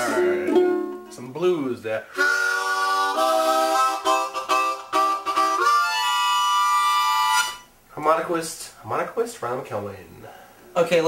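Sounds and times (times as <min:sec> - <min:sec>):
harmonica playing chords: 0:00.0 - 0:01.2, 0:02.1 - 0:07.7.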